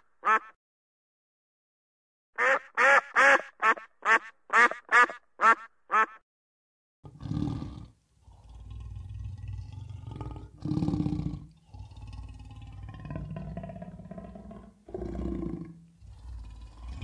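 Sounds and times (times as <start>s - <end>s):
duck quacking calls: 0.0s - 0.6s, 2.4s - 6.2s
leopard growling: 7.1s - 17.0s.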